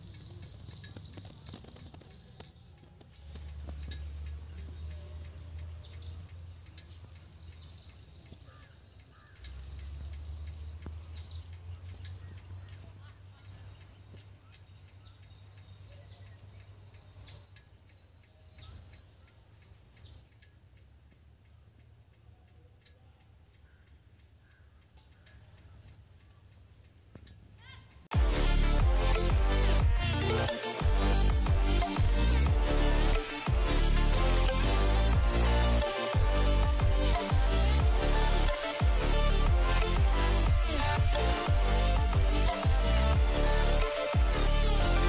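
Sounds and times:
insect drone: 0:00.0 - 0:45.0
low rumble: 0:28.2 - 0:45.0.

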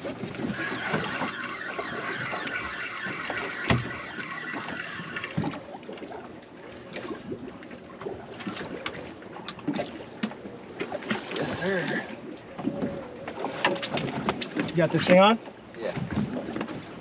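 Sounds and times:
wind and sea hiss: 0:00.0 - 0:17.0
fishing reels cranking: 0:00.2 - 0:05.7.

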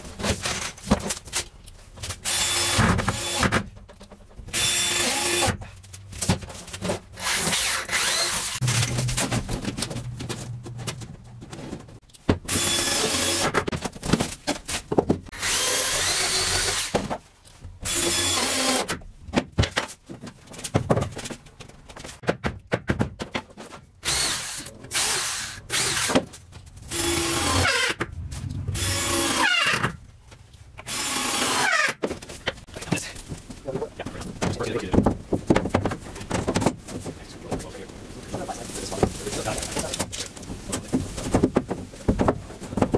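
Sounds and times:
power drill drilling into wood: 0:02.3 - 0:03.5, 0:04.5 - 0:05.6, 0:07.2 - 0:08.6, 0:12.5 - 0:13.6, 0:15.3 - 0:16.9, 0:17.8 - 0:18.9, 0:24.0 - 0:26.2, 0:26.9 - 0:28.0, 0:28.8 - 0:29.8, 0:30.9 - 0:32.0
knocks and clatter: 0:08.6 - 0:12.6, 0:32.0 - 0:37.8, 0:38.4 - 0:42.9.

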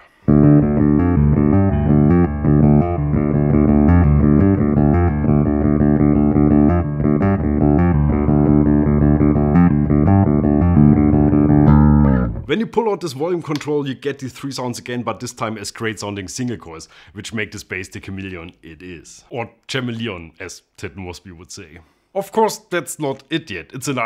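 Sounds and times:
electric bass rock line: 0:00.1 - 0:12.5.

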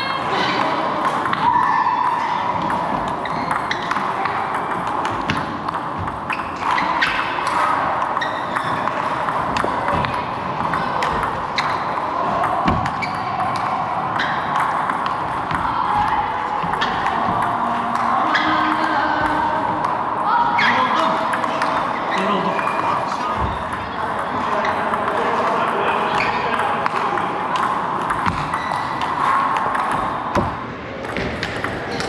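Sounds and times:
steady background noise: 0:00.0 - 0:32.0
table tennis ball clicking: 0:26.2 - 0:32.0.

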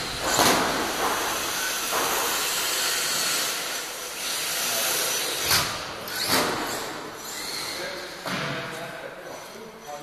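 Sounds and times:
electric toy truck motor hiss: 0:01.2 - 0:05.4.

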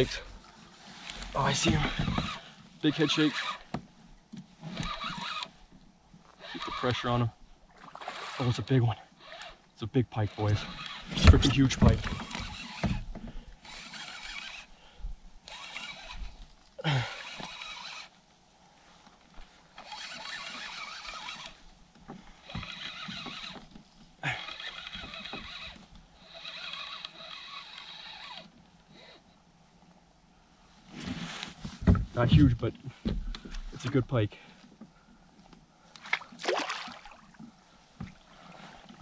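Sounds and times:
fishing reel whirring: 0:01.1 - 0:03.6, 0:04.7 - 0:05.6, 0:06.4 - 0:07.2, 0:07.9 - 0:08.6, 0:09.2 - 0:09.6, 0:10.4 - 0:13.0, 0:13.6 - 0:14.8, 0:15.4 - 0:18.2, 0:19.8 - 0:21.6, 0:22.4 - 0:29.1
sharp clicks of fishing reel: 0:04.8 - 0:05.5, 0:06.4 - 0:07.0, 0:09.2 - 0:09.6, 0:15.4 - 0:16.3, 0:17.2 - 0:18.1, 0:19.8 - 0:21.6, 0:24.3 - 0:28.6.

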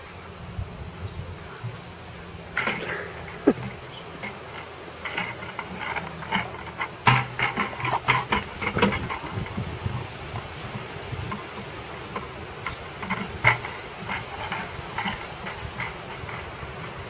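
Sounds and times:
plastic bucket scraping over grass: 0:02.4 - 0:17.0.

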